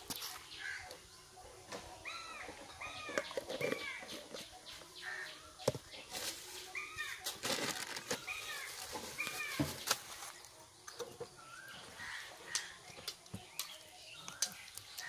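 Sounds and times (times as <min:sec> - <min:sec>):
bird calling: 0:00.0 - 0:10.3, 0:11.3 - 0:15.0
plastic bag rustling: 0:06.0 - 0:10.6.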